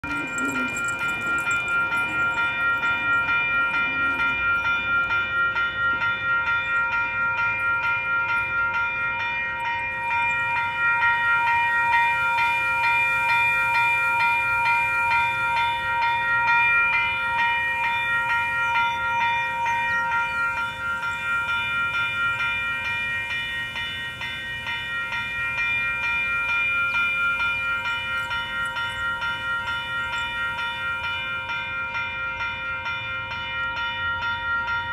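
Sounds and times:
railroad crossing bell ringing: 0.0 - 34.9.

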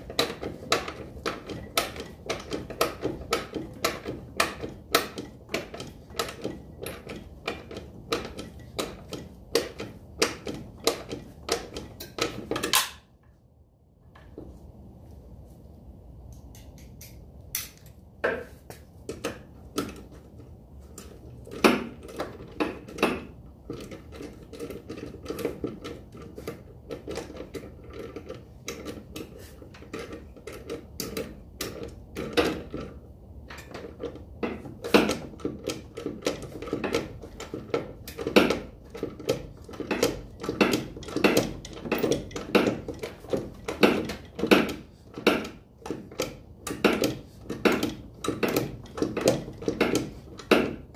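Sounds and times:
hand tools clicking on metal: 0.0 - 13.1, 16.3 - 20.2, 33.5 - 50.9.

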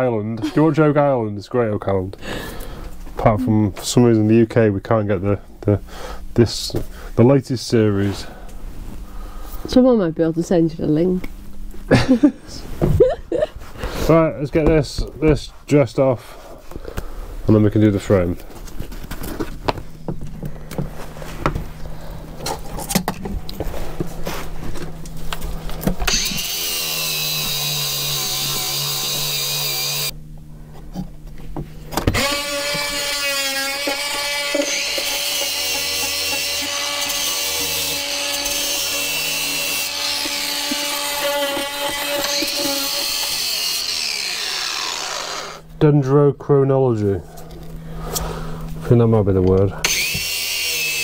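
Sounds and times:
angle grinder sanding wood: 26.1 - 30.1, 32.2 - 45.7, 49.8 - 51.0.

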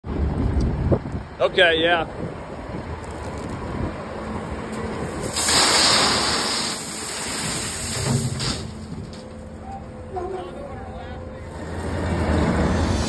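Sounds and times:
gravel pouring into metal bin: 5.2 - 8.8
loader engine running: 6.8 - 13.0.

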